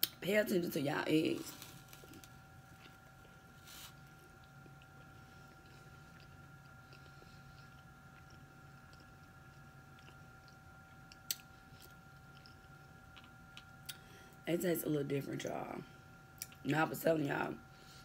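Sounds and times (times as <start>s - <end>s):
faint electrical whine and hum: 0.0s - 18.0s
chewing with wet mouth clicks: 4.3s - 14.0s, 16.4s - 16.6s.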